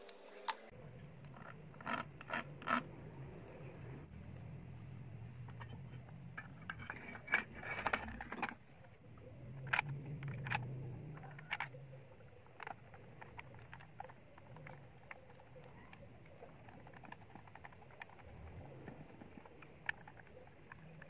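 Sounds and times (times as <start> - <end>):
plastic parts clicking and scraping: 5.4 - 21.0.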